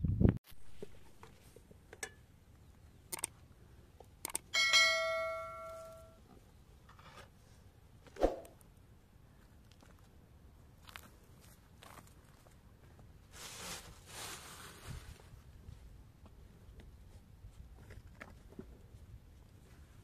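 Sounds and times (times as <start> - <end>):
bright bell ding: 4.6 - 6.2.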